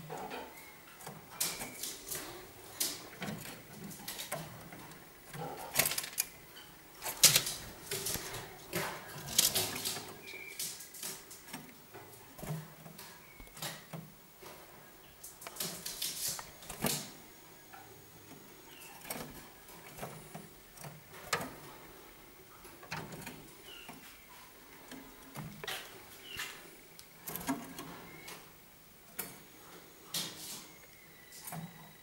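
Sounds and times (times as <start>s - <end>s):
canaries chirping softly: 0.0s - 32.0s
clicks and rustling: 1.0s - 6.4s, 7.0s - 21.9s.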